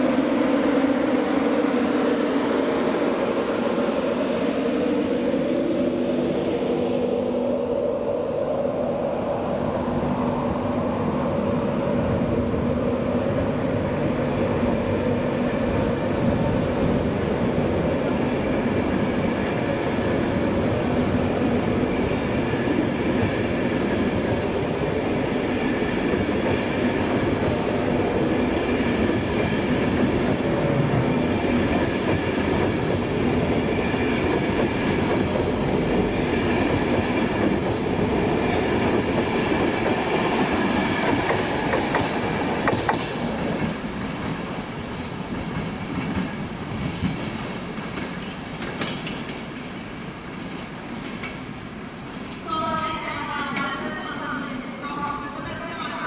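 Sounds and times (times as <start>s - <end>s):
train rolling past: 0.0s - 56.0s
wheels clickety-clack: 41.0s - 44.4s, 45.3s - 51.4s.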